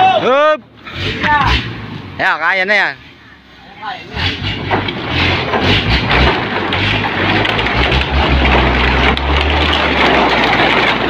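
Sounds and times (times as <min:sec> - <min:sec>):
truck engine pulling under load: 0:04.0 - 0:11.0.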